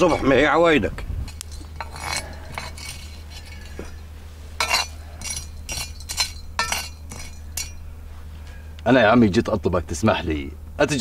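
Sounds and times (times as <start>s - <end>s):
dishes clinking against metal bowl: 0.0s - 4.0s, 4.6s - 7.8s
low steady hum: 0.0s - 11.0s.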